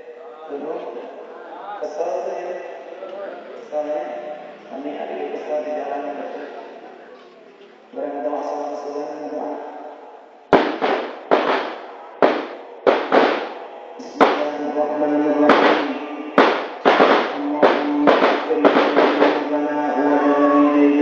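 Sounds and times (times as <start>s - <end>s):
loud sharp bangs: 10.5s - 20.0s.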